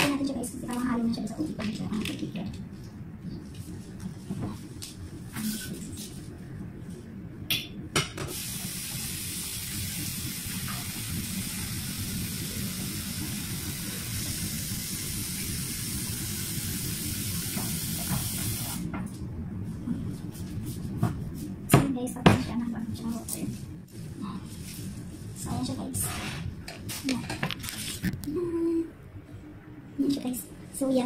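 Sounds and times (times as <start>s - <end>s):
water running from a tap: 8.3s - 18.8s.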